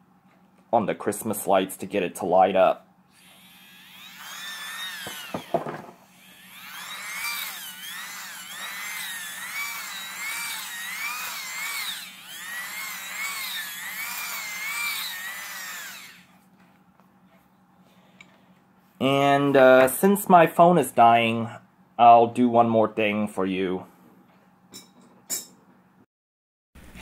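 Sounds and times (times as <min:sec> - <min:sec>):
small motor whirring with whine: 0:03.1 - 0:16.4
motor clicks: 0:03.2 - 0:05.5.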